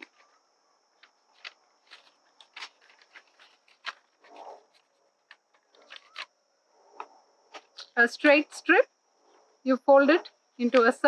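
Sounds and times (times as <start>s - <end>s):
paper clicks and rustles: 1.0s - 6.3s.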